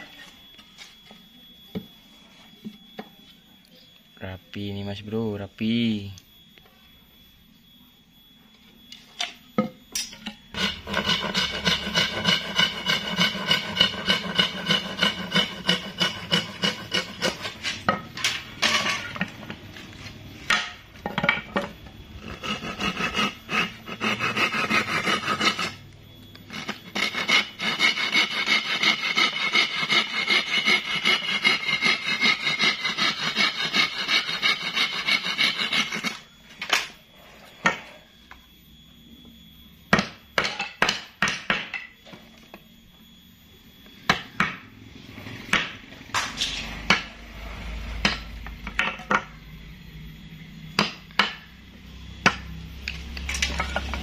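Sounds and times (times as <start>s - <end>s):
hand tool rubbing hard wood: 10.6s - 17.6s, 22.2s - 25.8s, 26.5s - 36.1s.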